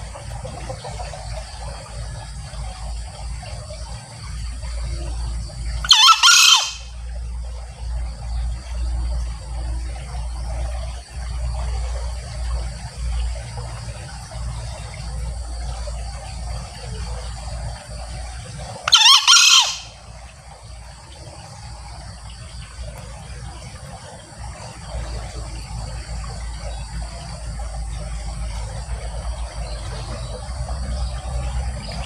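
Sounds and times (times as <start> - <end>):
junglefowl crowing: 5.8 - 7.0, 18.8 - 20.0.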